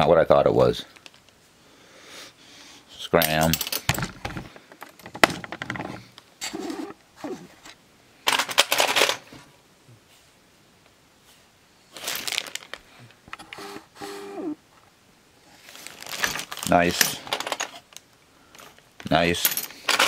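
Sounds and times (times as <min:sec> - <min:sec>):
plastic bag rustling: 0:11.8 - 0:13.1, 0:15.6 - 0:18.0.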